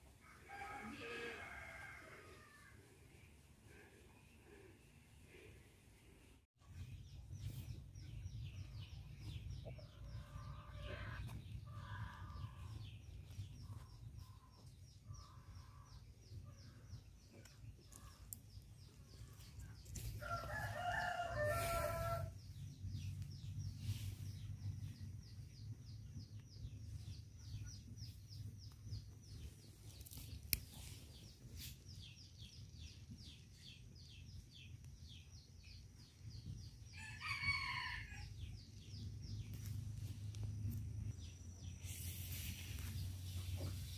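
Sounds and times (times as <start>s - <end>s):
rooster crowing: 0.3s - 2.7s, 20.2s - 22.4s.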